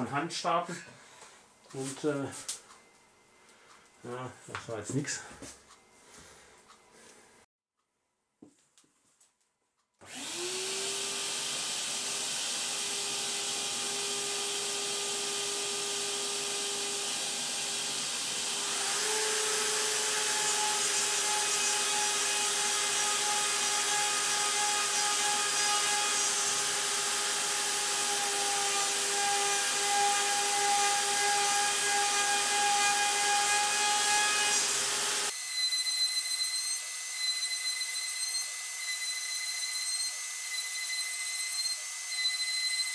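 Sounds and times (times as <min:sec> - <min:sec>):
vacuum cleaner hum: 0:10.0 - 0:20.0
router spindle running: 0:10.0 - 0:35.4.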